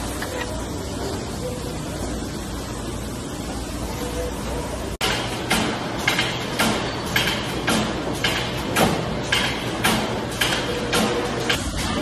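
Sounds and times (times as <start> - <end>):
machinery clacking rhythmically: 5.0 - 12.0.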